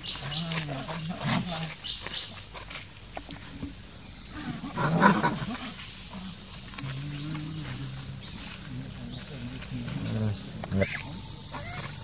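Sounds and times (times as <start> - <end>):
macaque calling: 10.0 - 12.0.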